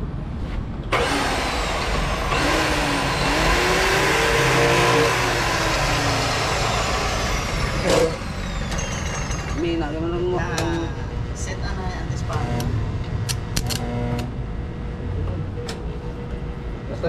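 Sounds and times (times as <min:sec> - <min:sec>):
vehicle engine revving: 0:00.9 - 0:09.6.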